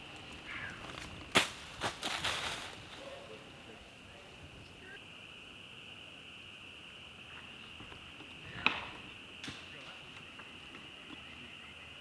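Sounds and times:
insect drone: 0:00.0 - 0:12.0
sharp smack: 0:01.3 - 0:02.4.

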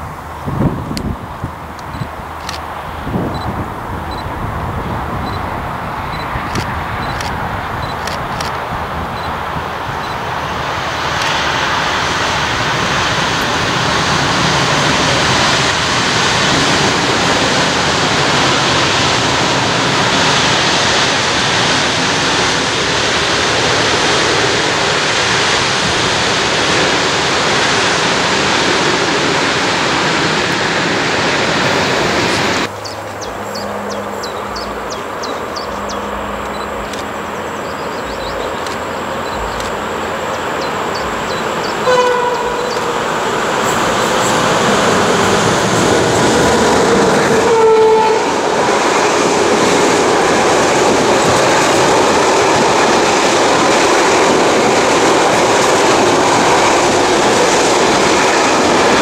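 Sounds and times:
locomotive low hum: 0:26.3 - 0:59.0
train horn blast: 0:32.7 - 0:38.5, 0:41.0 - 0:48.6.

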